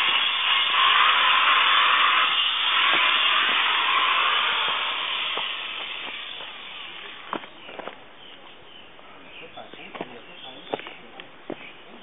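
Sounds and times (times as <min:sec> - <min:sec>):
loud hiss of rushing air: 0:00.0 - 0:07.4.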